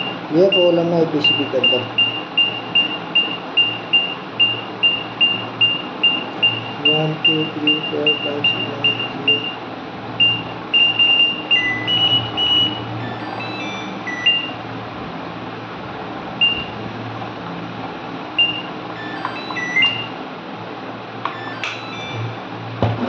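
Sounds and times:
washing machine electronic beeps: 0:00.0 - 0:14.7, 0:16.4 - 0:16.9, 0:18.4 - 0:20.3, 0:21.2 - 0:23.0
man talking: 0:00.3 - 0:02.0, 0:06.8 - 0:09.5.

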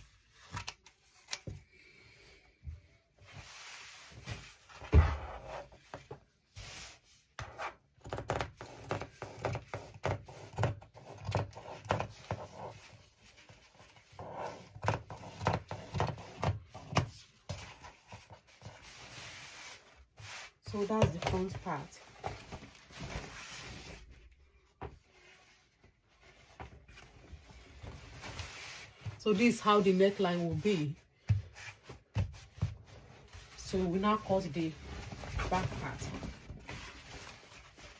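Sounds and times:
cloth rustling: 0:17.6 - 0:37.9.

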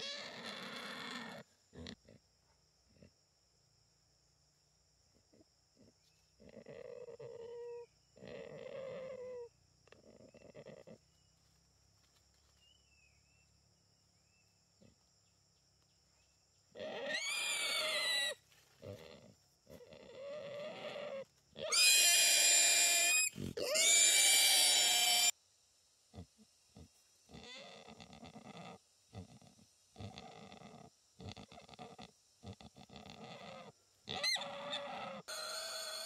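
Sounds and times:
wild boar squealing: 0:00.0 - 0:02.0, 0:06.8 - 0:09.5, 0:16.8 - 0:25.3, 0:32.6 - 0:36.0.

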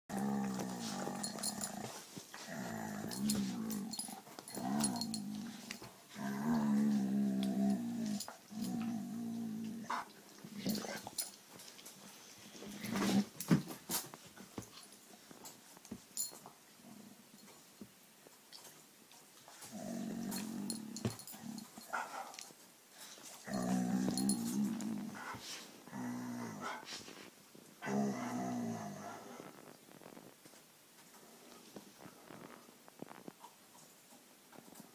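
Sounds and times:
dog growling: 0:00.1 - 0:11.2, 0:19.6 - 0:22.4, 0:23.4 - 0:26.9, 0:27.8 - 0:30.2.

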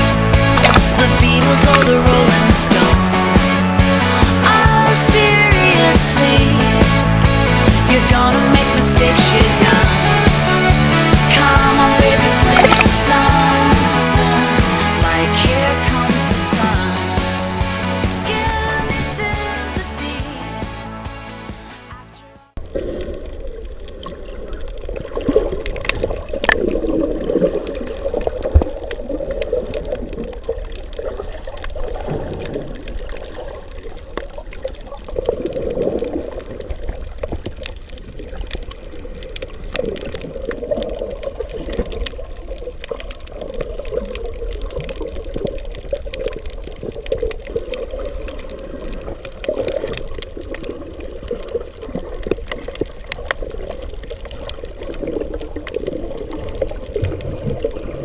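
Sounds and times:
underwater water sloshing: 0:00.4 - 0:04.3, 0:22.6 - 0:58.0.

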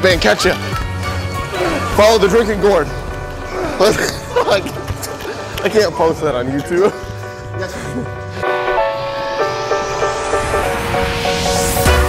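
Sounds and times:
repeating synth riff: 0:01.5 - 0:05.7
rising noise sweep: 0:01.6 - 0:05.9, 0:09.4 - 0:12.0.

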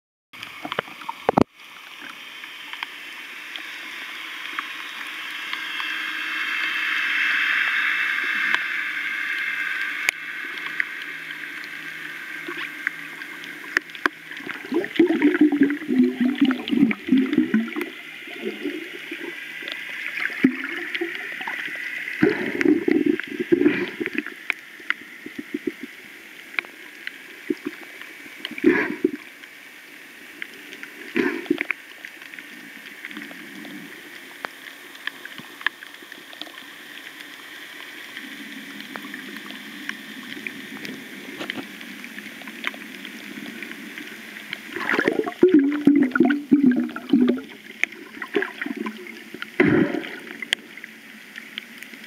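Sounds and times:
underwater hiss: 0:00.4 - 0:52.0
low gurgling bursts: 0:10.3 - 0:26.1, 0:43.0 - 0:51.3.

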